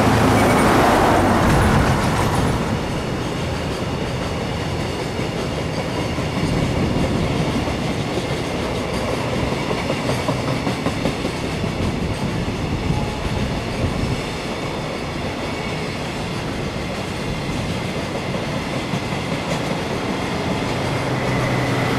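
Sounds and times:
freight train wagons rolling: 0:00.0 - 0:21.9
wheels clacking over rail joints: 0:00.0 - 0:21.9.

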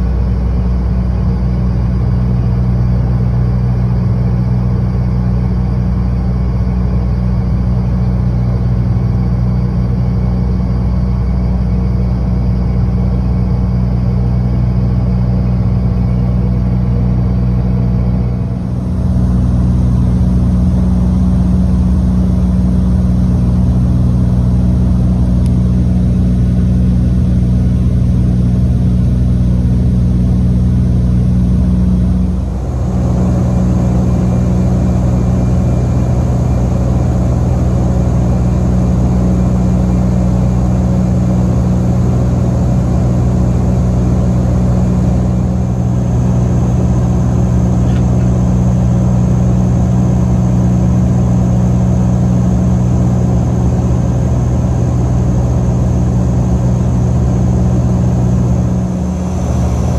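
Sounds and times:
turboprop engines droning in cabin: 0:00.0 - 0:59.9.

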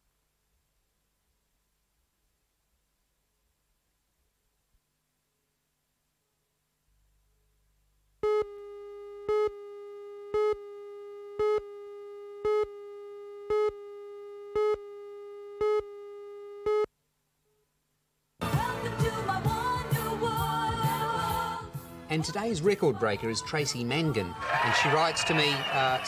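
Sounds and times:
music: 0:18.4 - 0:26.0
countdown beeps: 0:24.4 - 0:26.0
steady tone: 0:24.4 - 0:26.0.

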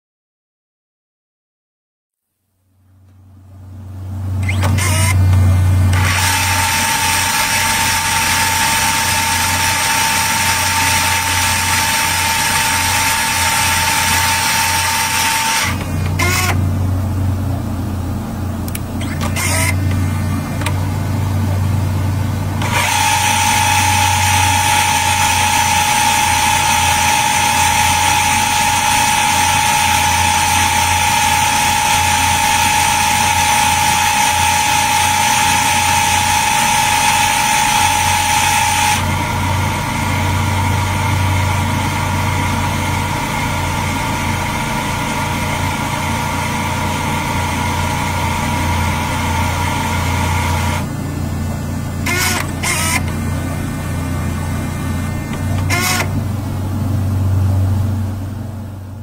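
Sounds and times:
tape recorder rewinding whir: 0:04.4 - 0:16.8, 0:18.4 - 0:56.9.

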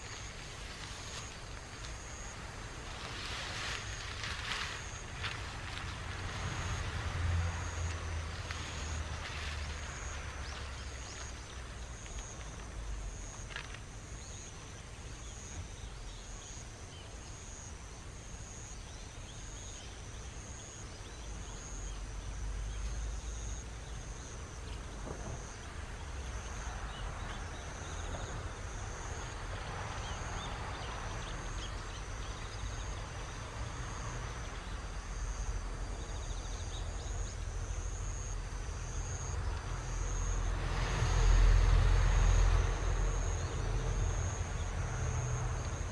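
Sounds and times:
insect chirping: 0:00.0 - 0:45.9.

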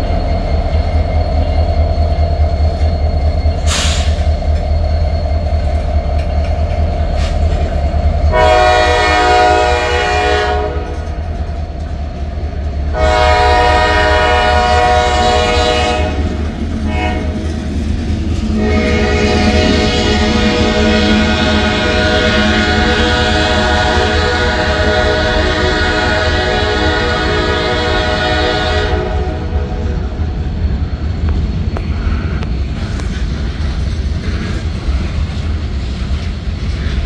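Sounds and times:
freight train rumble and wheel clatter: 0:00.0 - 0:37.0
locomotive air horn blasts: 0:08.3 - 0:11.0, 0:12.9 - 0:17.4, 0:18.5 - 0:29.8.

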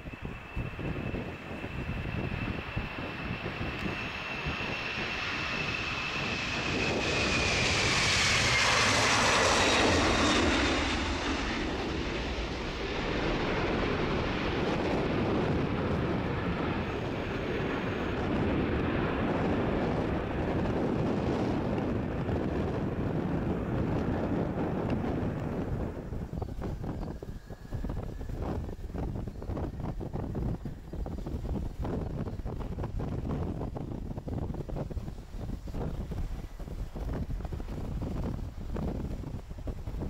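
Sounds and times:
high jet whine: 0:00.0 - 0:30.0
jet engines at takeoff: 0:00.0 - 0:40.0.

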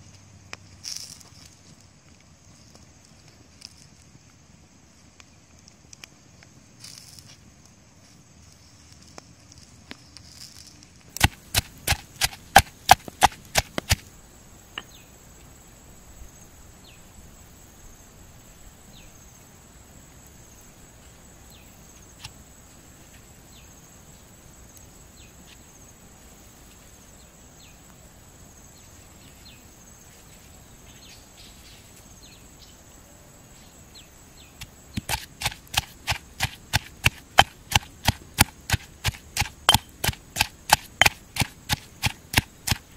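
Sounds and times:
pestle pounding in stone mortar: 0:11.2 - 0:14.0, 0:34.6 - 0:42.9.

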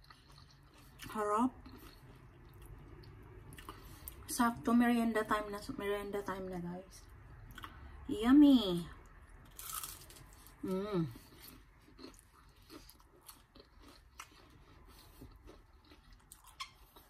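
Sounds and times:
crunching and chewing: 0:00.0 - 0:04.2, 0:09.0 - 0:10.6, 0:11.2 - 0:17.0.

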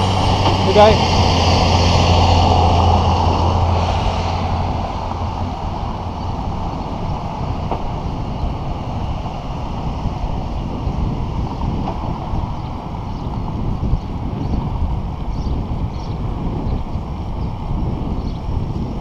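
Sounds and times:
truck engine driving past: 0:00.0 - 0:13.8
wind on microphone: 0:00.0 - 0:19.0.

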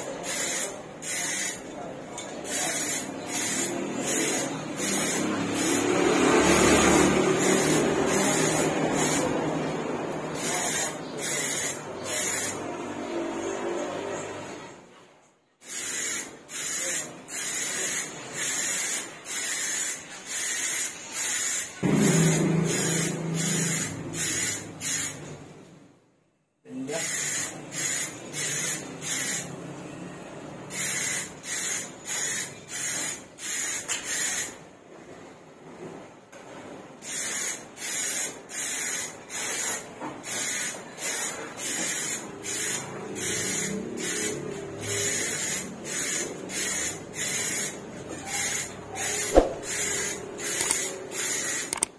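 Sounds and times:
aerosol spray can hissing: 0:07.4 - 0:09.3, 0:37.1 - 0:51.8.

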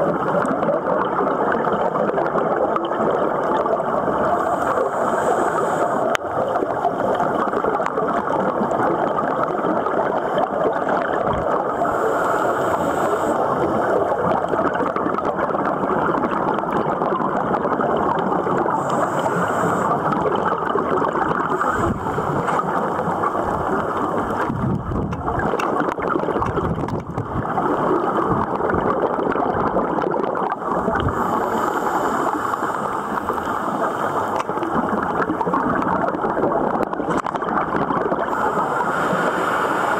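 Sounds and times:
underwater rushing gurgling water: 0:00.0 - 0:39.9.

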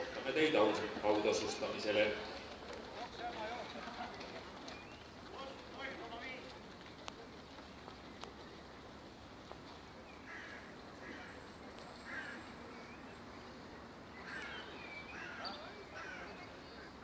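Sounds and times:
faint outdoor background noise: 0:00.0 - 0:17.0
crows cawing: 0:10.2 - 0:11.4, 0:12.0 - 0:12.5, 0:14.2 - 0:16.4.

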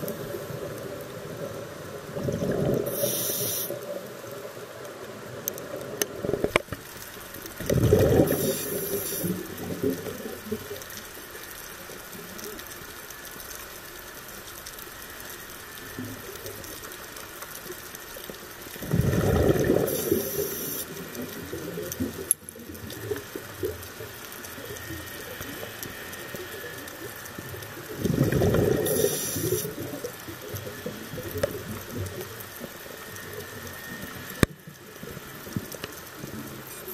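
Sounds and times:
faint underwater hiss: 0:00.0 - 0:36.9
air bubbling underwater: 0:07.6 - 0:09.2, 0:18.8 - 0:20.4.

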